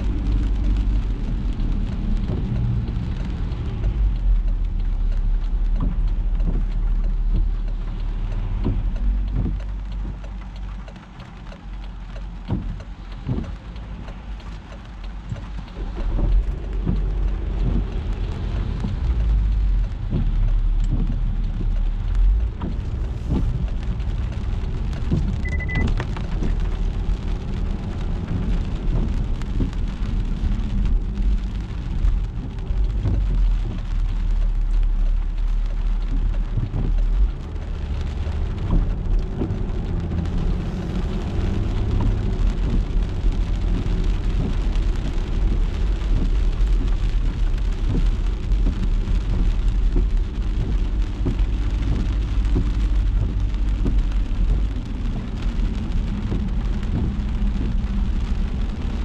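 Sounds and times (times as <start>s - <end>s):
car driving on wet road: 0.0s - 59.0s
rain pattering on a car: 0.0s - 59.0s
short high beep: 25.4s - 25.9s.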